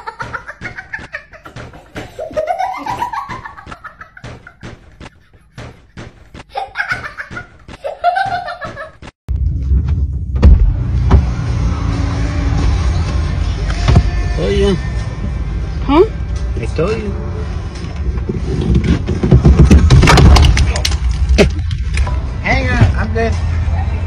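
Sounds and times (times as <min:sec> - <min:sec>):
person laughing hard: 0:00.0 - 0:09.1
steady low rumble: 0:09.3 - 0:19.9.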